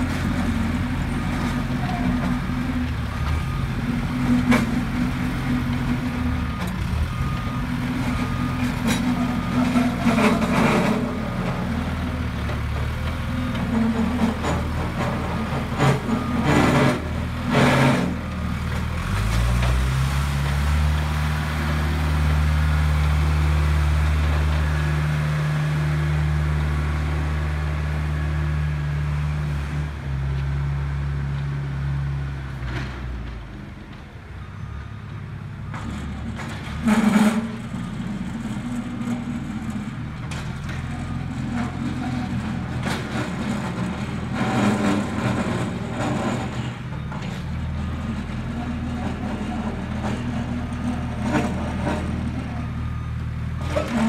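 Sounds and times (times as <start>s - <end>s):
tractor engine humming: 0.0s - 32.5s.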